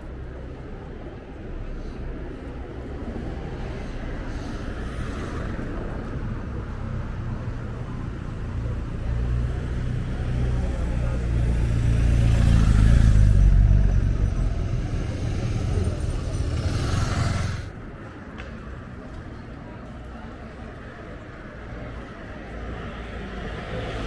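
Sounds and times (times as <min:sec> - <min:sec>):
vehicle engine rumble: 0:00.0 - 0:24.0
motorcycle passing: 0:09.7 - 0:17.7.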